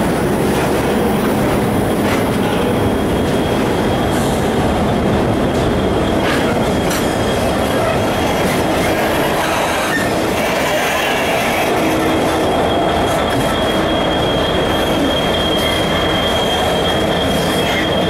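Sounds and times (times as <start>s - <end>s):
diesel locomotive: 0.0s - 18.0s
rail wagons rolling past: 0.0s - 18.0s
high wheel squeal: 5.5s - 18.0s.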